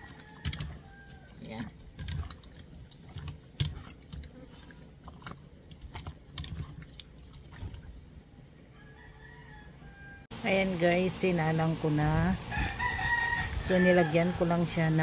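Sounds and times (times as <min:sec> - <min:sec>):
hands kneading wet raw meat: 0:00.0 - 0:08.2.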